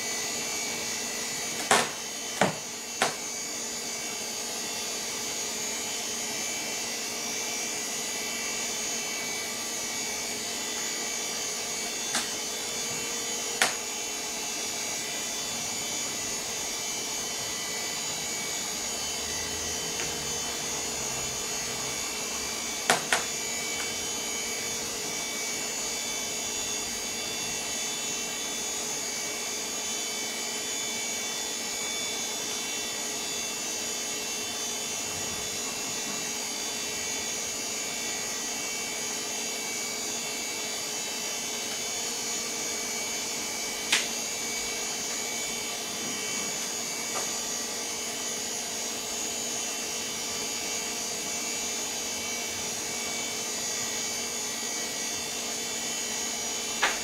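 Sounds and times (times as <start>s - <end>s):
computer fans and disk whirring: 0.0s - 57.0s.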